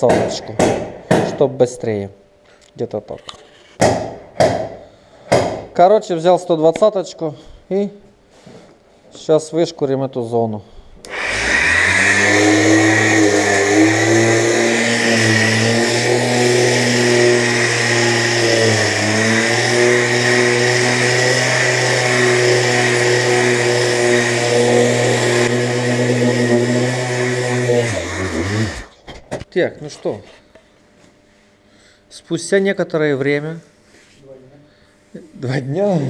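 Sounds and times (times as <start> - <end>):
orbital sander motor hum: 11.1 - 28.9.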